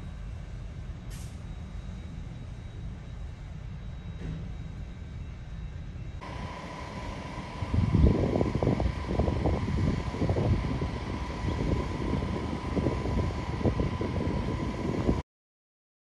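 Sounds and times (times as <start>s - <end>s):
wind buffeting microphone: 6.2s - 15.2s.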